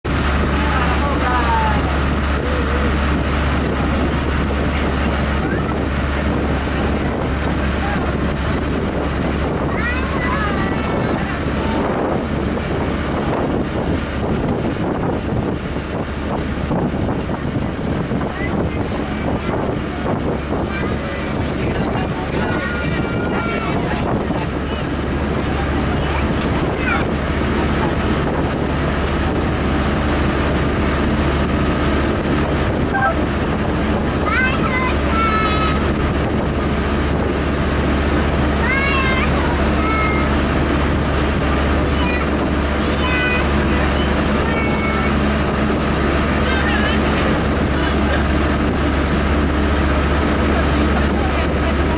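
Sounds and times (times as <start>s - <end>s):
boat engine droning: 0.0s - 51.9s
water noise: 0.0s - 51.9s
wind buffeting microphone: 0.1s - 51.9s.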